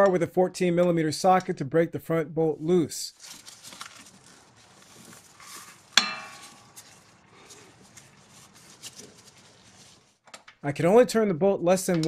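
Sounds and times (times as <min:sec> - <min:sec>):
sharp metallic clank: 0:06.0 - 0:06.8.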